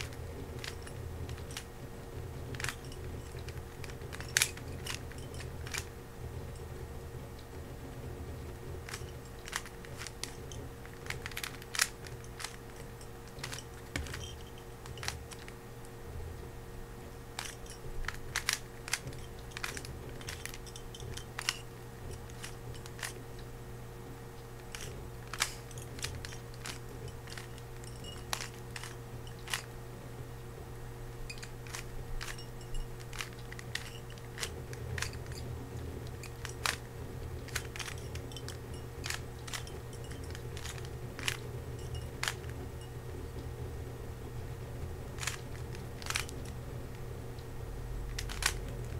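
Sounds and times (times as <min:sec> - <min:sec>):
plastic cube clacking: 0:00.0 - 0:01.7, 0:02.4 - 0:05.9, 0:08.8 - 0:15.6, 0:17.3 - 0:23.2, 0:24.6 - 0:29.8, 0:31.3 - 0:42.8, 0:45.1 - 0:46.6, 0:48.0 - 0:48.9
low hum: 0:00.0 - 0:48.9.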